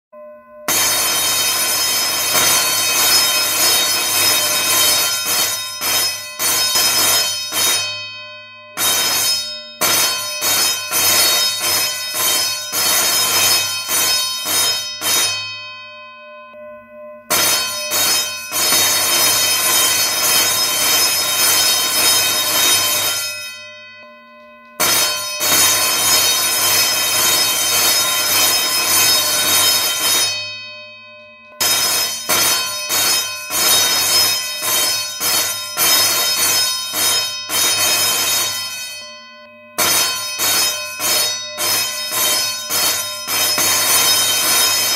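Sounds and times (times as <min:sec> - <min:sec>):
electric bell ringing: 0:00.2 - 0:44.9.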